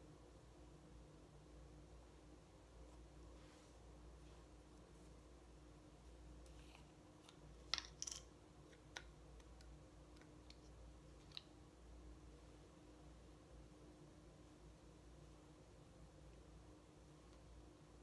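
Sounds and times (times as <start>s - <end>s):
small jar clicks and taps: 6.5s - 11.5s.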